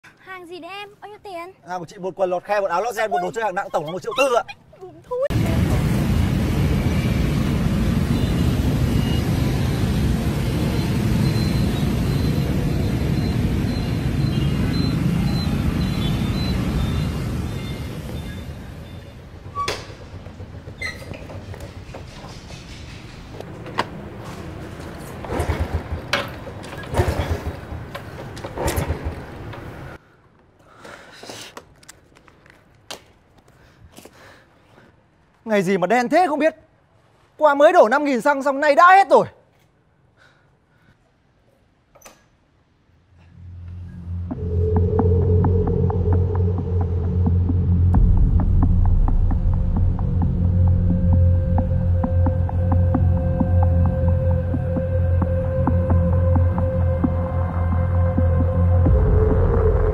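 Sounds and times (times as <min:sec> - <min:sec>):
motorbike traffic rumble: 0:05.3 - 0:30.0
small motorbike engine sputtering: 0:24.6 - 0:30.0.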